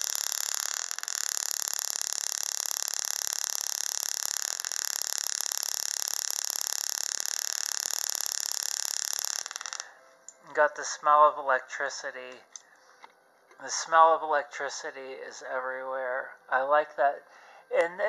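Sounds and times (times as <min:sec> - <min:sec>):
tesla coil spark crackling: 0:00.0 - 0:10.9.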